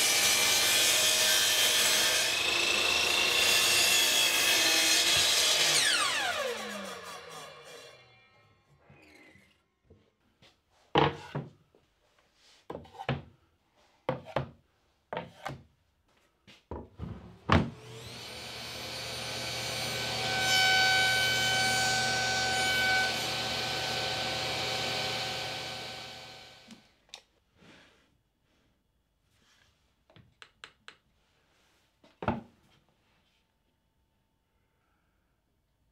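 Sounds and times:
saw cutting plywood: 0.0 - 8.2, 17.7 - 26.8
table saw whining: 0.0 - 9.6, 17.6 - 26.8.

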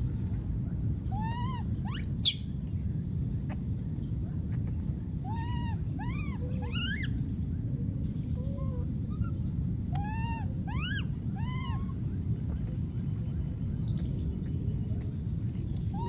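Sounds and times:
steady low rumble: 0.0 - 16.0
baby macaque squealing: 1.1 - 2.4, 5.3 - 7.2, 10.0 - 12.0.

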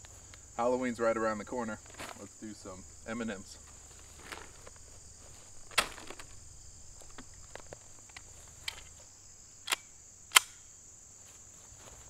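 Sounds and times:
insects trilling: 0.0 - 12.0
pistol handling clicks: 9.6 - 10.7.

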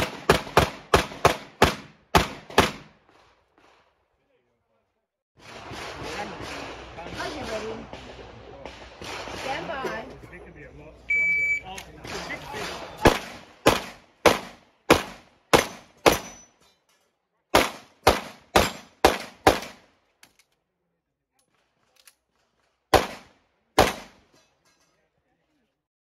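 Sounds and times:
pistol shots: 0.0 - 3.0, 5.4 - 9.9, 12.0 - 16.4, 17.5 - 19.9, 22.9 - 24.2.

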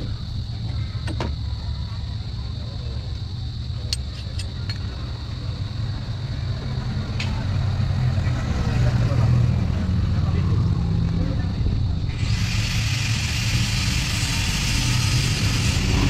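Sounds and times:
steady low rumble: 8.6 - 16.0
steady high hiss: 12.1 - 16.0.

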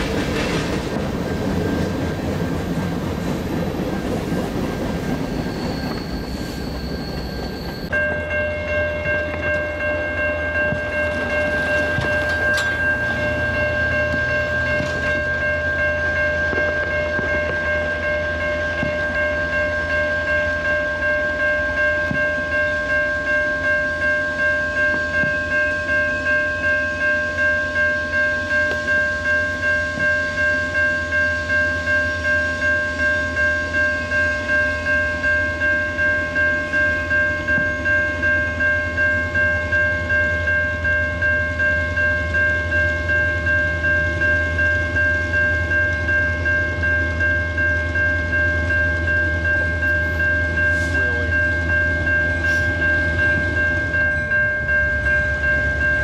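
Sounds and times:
diesel train rumble: 0.0 - 56.0
electronic crossing bell ringing: 5.3 - 56.0.

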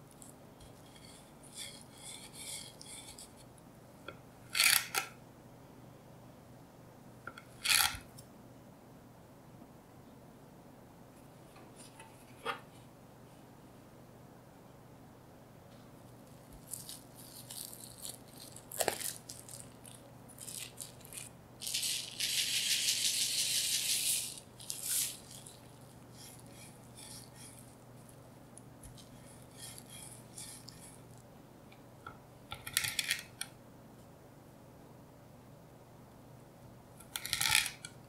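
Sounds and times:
plastic wrap rustling: 16.2 - 28.1
cling film crinkling: 16.3 - 26.5
sugar pouring onto plastic wrap: 16.6 - 27.6.

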